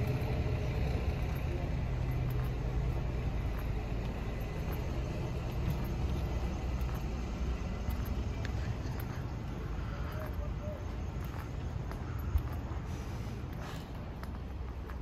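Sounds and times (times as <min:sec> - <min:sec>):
car engines passing: 0:00.0 - 0:15.0.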